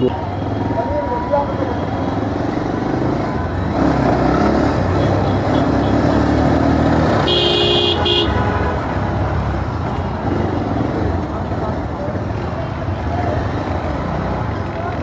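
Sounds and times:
road and wind noise: 0.0s - 15.0s
motorcycle engine accelerating: 2.0s - 7.9s
vehicle horn honking: 7.2s - 9.0s.

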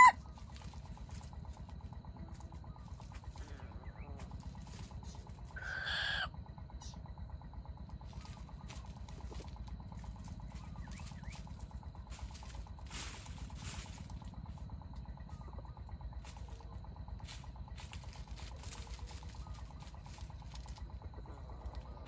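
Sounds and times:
jungle fowl call: 0.0s - 0.2s, 5.5s - 7.0s
steady low background noise: 0.0s - 22.0s.

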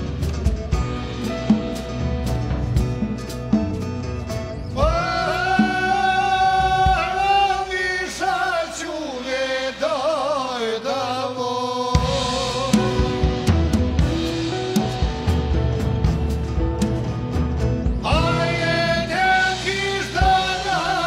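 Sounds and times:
jazz band playing: 0.0s - 7.4s, 12.0s - 21.0s
drum kit: 0.0s - 8.4s, 11.9s - 21.0s
man singing with vibrato: 4.8s - 14.1s, 18.0s - 21.0s.

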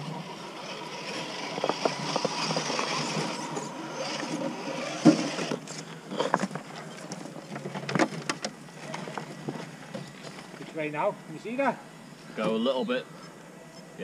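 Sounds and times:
toy truck driving over stones: 0.0s - 10.4s
faint steady whine: 0.0s - 14.0s.

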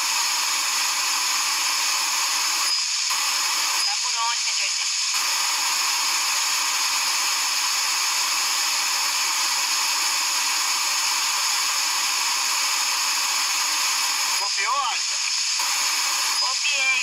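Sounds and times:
radio static hiss: 0.0s - 17.0s.

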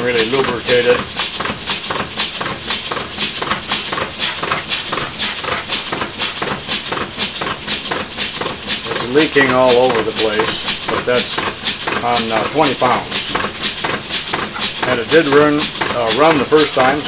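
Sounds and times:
steam engine puffing and knocking: 0.0s - 17.0s.

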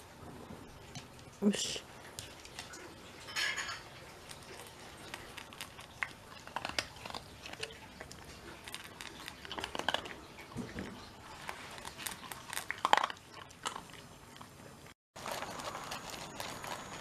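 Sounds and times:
kibble clinking in metal bowl: 3.2s - 5.6s
dog crunching kibble: 3.9s - 17.0s.

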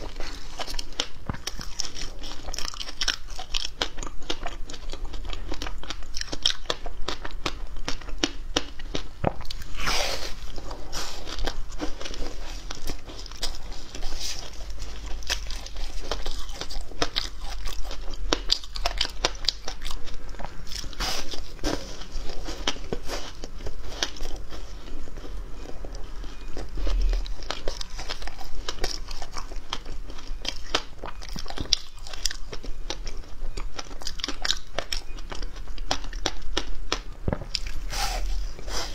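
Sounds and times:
chewing crunchy ice: 0.0s - 38.9s.

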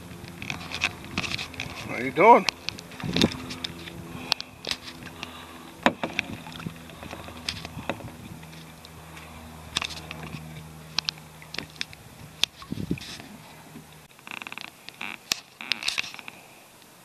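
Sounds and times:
light knocks on kayak: 5.8s - 6.4s.

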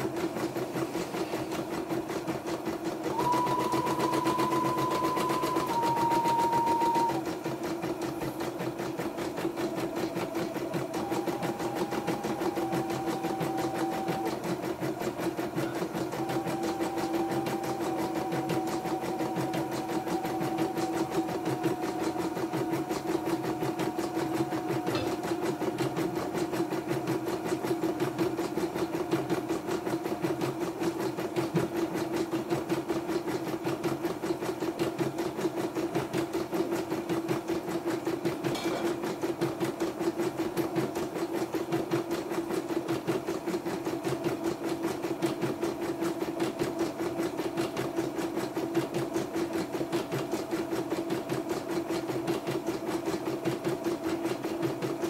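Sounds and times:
embroidery machine stitching: 0.0s - 55.0s.

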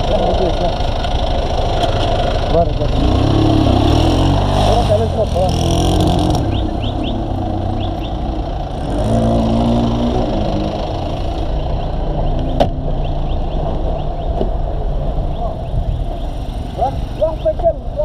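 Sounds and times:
engine idling: 0.0s - 4.1s.

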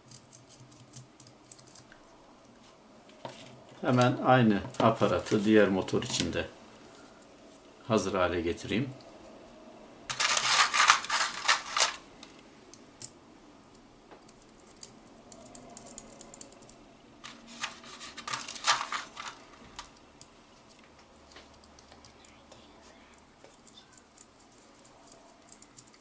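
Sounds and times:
small metal parts clicking: 0.0s - 2.0s, 10.1s - 12.0s, 14.3s - 22.2s, 23.5s - 26.0s
small screws rattling in plastic tray: 10.1s - 12.0s, 17.2s - 19.4s.

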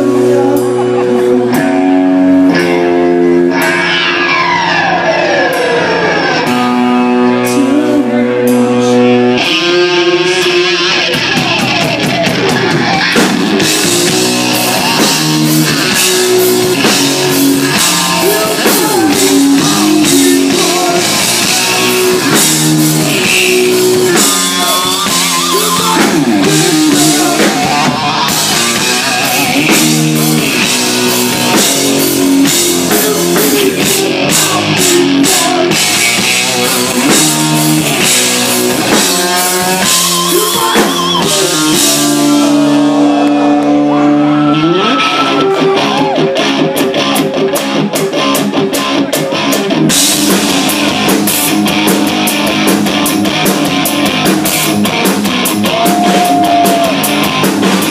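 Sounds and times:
bass guitar: 0.0s - 57.9s
electric guitar: 0.0s - 57.9s
drum kit with cymbals: 11.1s - 42.8s, 49.4s - 57.9s.

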